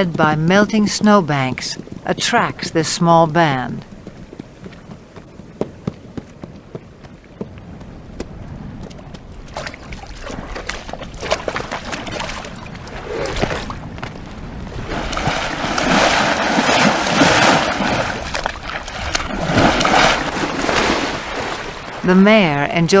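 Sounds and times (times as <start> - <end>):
water splashing and sloshing: 0.0 - 23.0.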